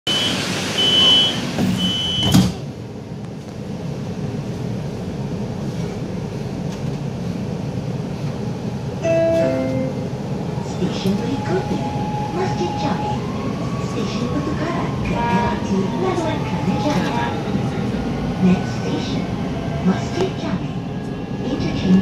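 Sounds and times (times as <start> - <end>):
train door warning beeps: 0.1 - 2.6.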